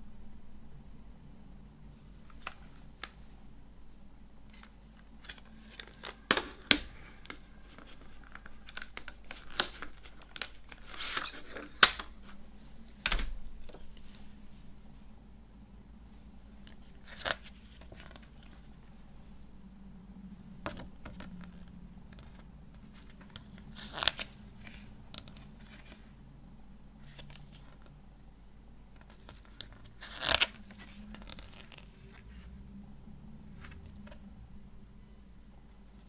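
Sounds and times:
paper pages turning: 0:04.5 - 0:14.3, 0:16.7 - 0:18.8, 0:20.7 - 0:26.0, 0:27.0 - 0:27.9, 0:29.0 - 0:32.4
paper handling rustle: 0:04.5 - 0:14.7, 0:16.6 - 0:19.0, 0:20.6 - 0:26.1, 0:29.0 - 0:32.5.

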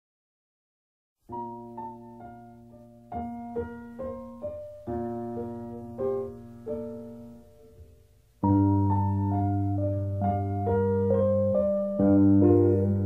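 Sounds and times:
slow piano music: 0:01.3 - 0:13.0.

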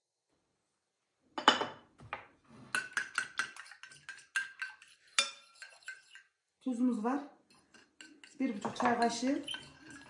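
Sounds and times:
fork clinking ceramic bowl: 0:02.7 - 0:06.3, 0:07.5 - 0:10.0.

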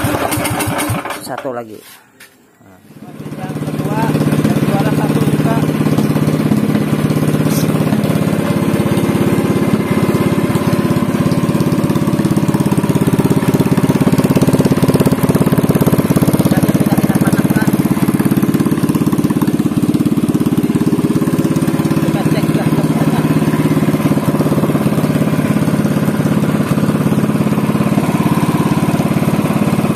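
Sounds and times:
single-cylinder engine running: 0:00.0 - 0:01.6, 0:02.9 - 0:29.9.

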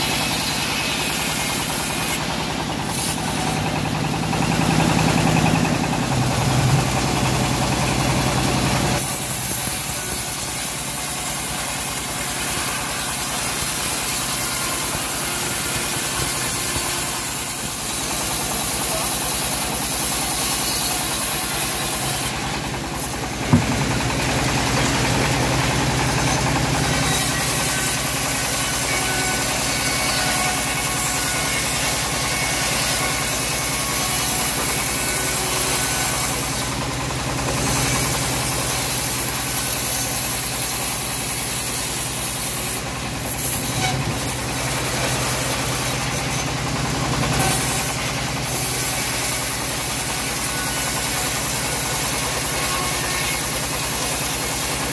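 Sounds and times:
bandsaw cutting log: 0:00.0 - 0:54.9
sharp knock: 0:23.4 - 0:24.0.

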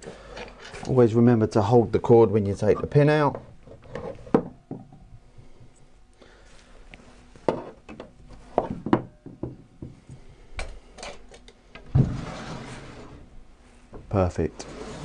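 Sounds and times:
wood and metal knocks and clicks: 0:07.5 - 0:10.0.

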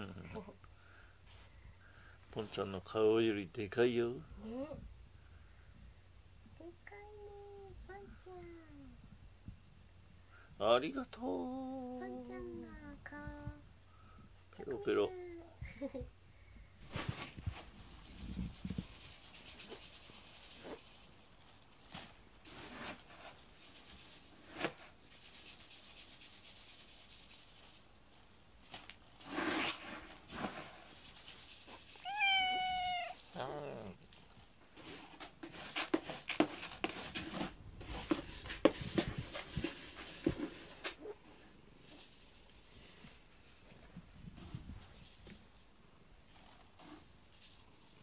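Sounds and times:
hand rubbing fur: 0:16.8 - 0:21.5, 0:22.5 - 0:28.2, 0:29.2 - 0:33.4, 0:34.8 - 0:45.6
cat meowing: 0:32.0 - 0:33.2.

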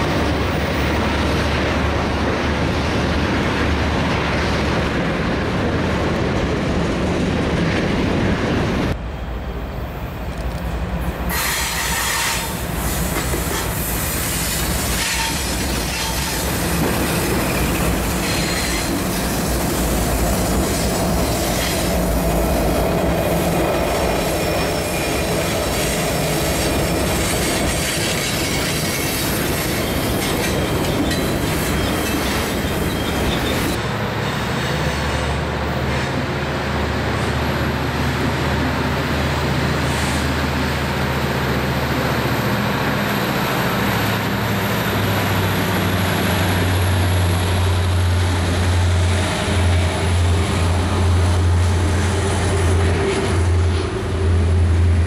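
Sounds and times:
diesel locomotive engine drone: 0:00.0 - 0:55.0
freight cars rolling with wheel squeal: 0:11.3 - 0:19.6, 0:23.2 - 0:35.4.

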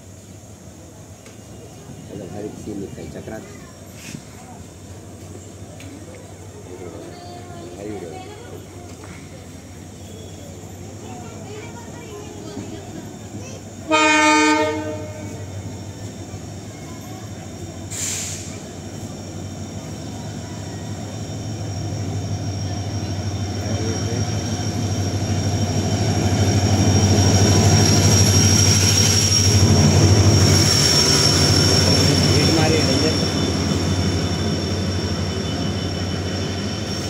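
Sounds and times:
train rumble: 0:00.0 - 0:37.0
brief hiss: 0:03.9 - 0:04.5, 0:17.9 - 0:18.8
train horn blast: 0:13.9 - 0:15.5.

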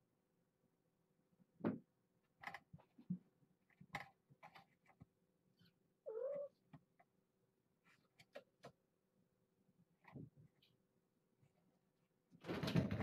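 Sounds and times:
cat meowing: 0:06.0 - 0:06.6.

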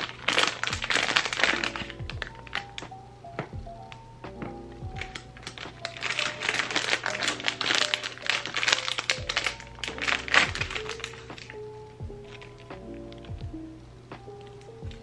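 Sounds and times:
plastic bag crinkling: 0:00.0 - 0:02.8, 0:04.9 - 0:12.9
soft background music: 0:00.0 - 0:15.0.

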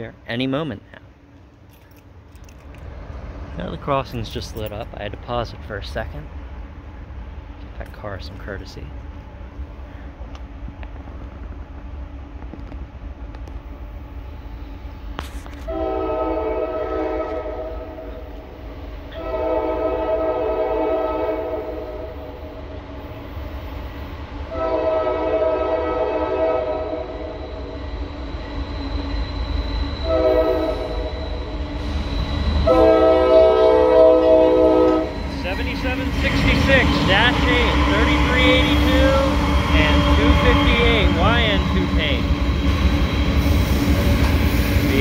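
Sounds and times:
train rumbling: 0:00.0 - 0:45.0
locomotive horn blasts: 0:15.6 - 0:18.1, 0:19.1 - 0:22.2, 0:24.5 - 0:27.3, 0:30.0 - 0:31.2, 0:32.6 - 0:39.2, 0:39.8 - 0:42.0.

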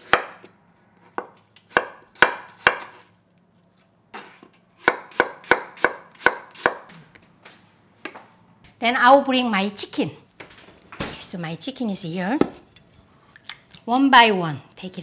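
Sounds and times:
knife slicing apple on board: 0:00.0 - 0:03.1, 0:04.1 - 0:06.9.

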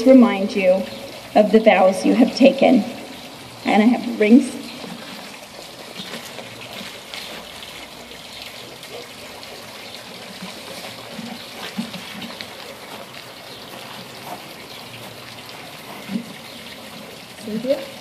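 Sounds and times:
running water hissing: 0:00.0 - 0:18.0.

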